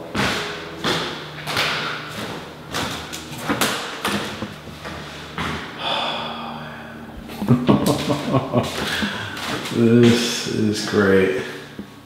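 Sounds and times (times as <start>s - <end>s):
footsteps on hardwood floor: 0.0s - 5.8s, 7.2s - 10.3s.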